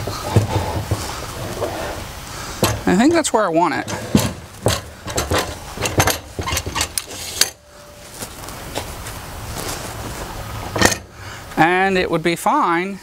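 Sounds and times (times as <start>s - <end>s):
metal clanks and knocks: 0.0s - 1.8s, 2.6s - 7.7s, 10.7s - 11.1s
steady background noise: 0.0s - 13.0s.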